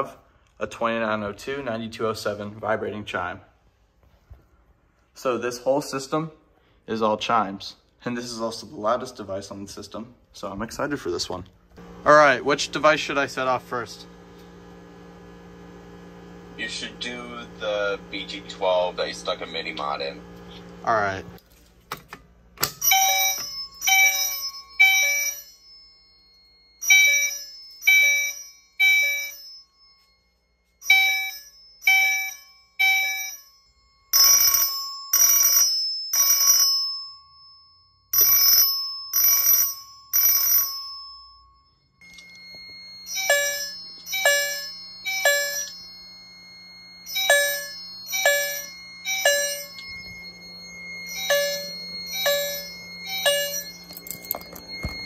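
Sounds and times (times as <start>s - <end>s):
fire alarm chimes striking: 11.8s - 21.1s, 22.6s - 55.0s
steady high tone: 11.8s - 21.4s, 40.6s - 55.0s
low hum: 47.7s - 55.0s.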